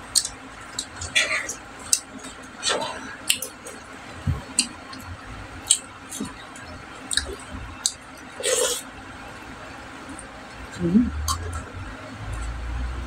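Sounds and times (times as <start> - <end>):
wet chewing sounds: 0.1 - 8.8.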